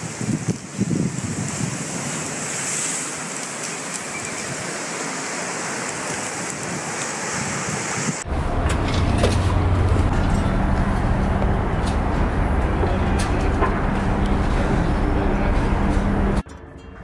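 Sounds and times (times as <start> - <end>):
wind buffeting microphone: 0.0 - 2.6, 5.9 - 16.4
sea surf: 0.0 - 10.1
wind: 0.0 - 17.0.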